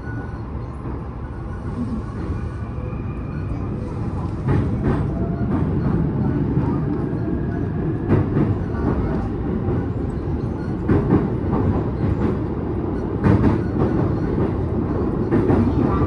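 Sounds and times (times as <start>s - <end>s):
train wheels rumbling on rail: 0.0s - 16.0s.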